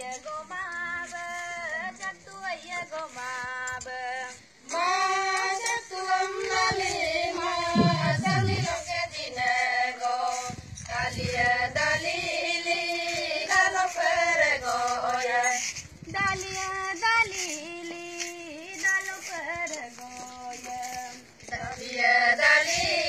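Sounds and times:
high voices singing together: 4.6s - 15.6s.

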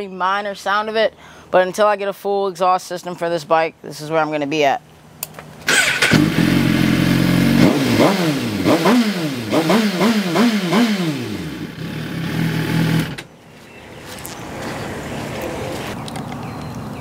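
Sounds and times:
motorcycle engine idling and revving: 5.6s - 13.3s.

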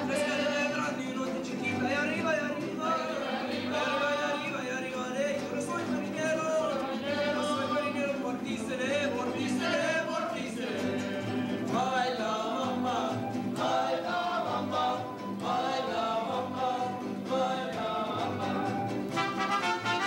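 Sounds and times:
strummed guitars: 0.0s - 20.0s
voices singing together: 0.0s - 20.0s
violins: 13.1s - 20.0s.

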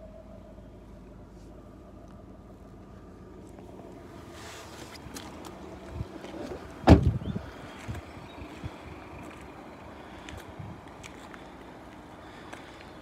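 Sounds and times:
car door thump: 6.8s - 7.2s.

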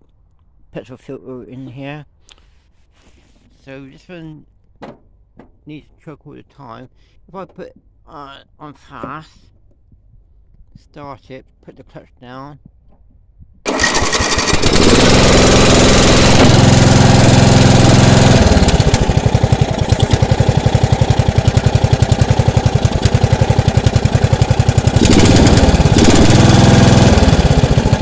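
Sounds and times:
mower engine running: 13.7s - 28.0s.

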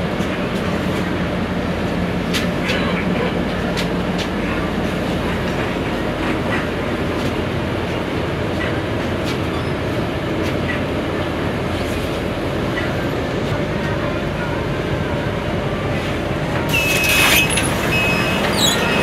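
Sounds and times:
bus engine and road rumble: 0.0s - 19.0s.

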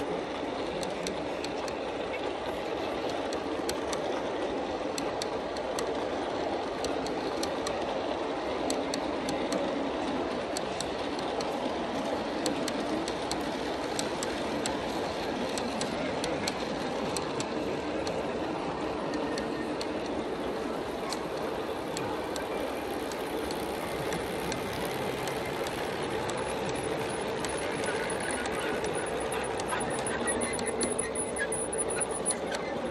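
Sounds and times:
model train rolling rumble: 0.0s - 32.9s
wheel clicks: 19.1s - 32.9s.

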